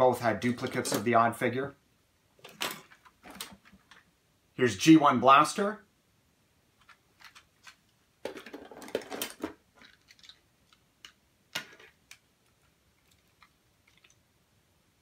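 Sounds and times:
plastic toys clicking and clattering: 0.4 - 1.1, 2.4 - 4.1, 6.8 - 14.2.

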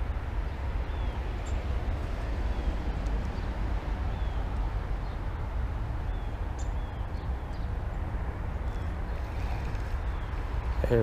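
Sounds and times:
bird chirping: 0.8 - 1.6, 2.5 - 5.4, 6.0 - 8.0, 8.6 - 11.0.

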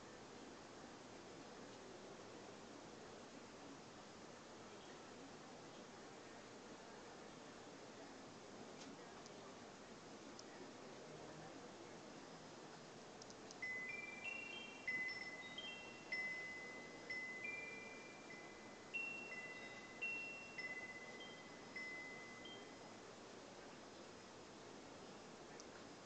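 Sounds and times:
wind chimes ringing: 13.6 - 23.0.

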